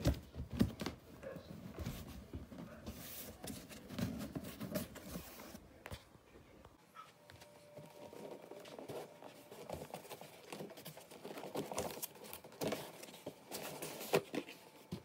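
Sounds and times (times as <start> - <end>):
cardboard box rustling and scraping: 1.6 - 5.6, 7.8 - 15.0.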